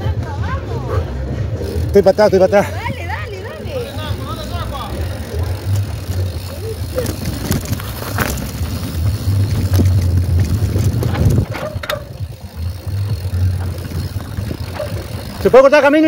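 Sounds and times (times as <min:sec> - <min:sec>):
mountain bike rattling on trail: 0:01.5 - 0:16.0
low rumble: 0:03.1 - 0:15.5.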